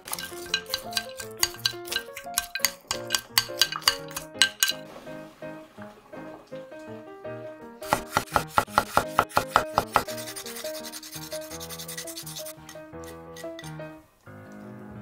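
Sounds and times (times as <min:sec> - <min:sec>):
ginger grating: 0:00.0 - 0:04.8, 0:07.8 - 0:13.8
soft instrumental music: 0:00.0 - 0:15.0.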